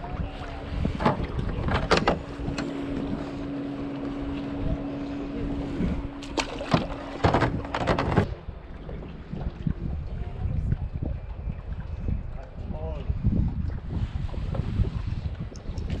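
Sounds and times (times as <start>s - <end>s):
steady low hum: 0.0s - 16.0s
wind buffeting microphone: 0.0s - 16.0s
fish splashing into water: 6.2s - 7.6s.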